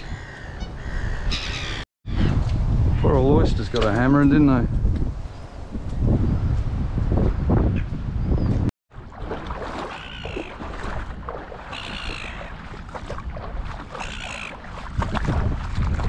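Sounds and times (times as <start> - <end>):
bird calling: 0.0 - 2.4, 9.8 - 10.8, 11.6 - 12.7, 13.8 - 14.7
wind: 0.0 - 16.0
water noise: 8.9 - 16.0.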